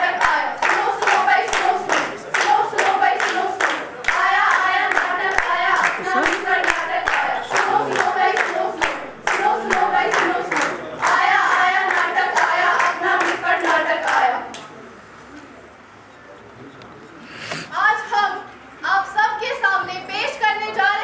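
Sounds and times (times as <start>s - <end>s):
women singing together: 0.0s - 14.5s
hands clapping in rhythm: 0.0s - 14.7s.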